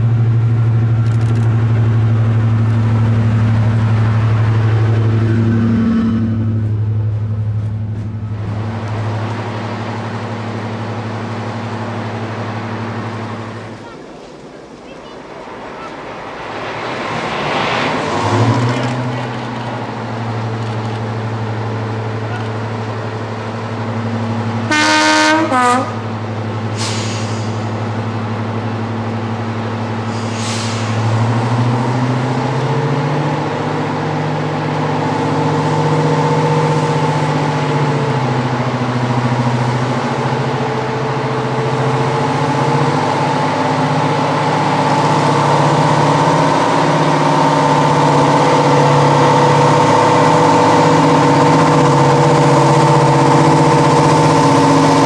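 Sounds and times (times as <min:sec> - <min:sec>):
diesel locomotive engine running: 0:00.0 - 0:55.0
locomotive horn: 0:24.6 - 0:26.1.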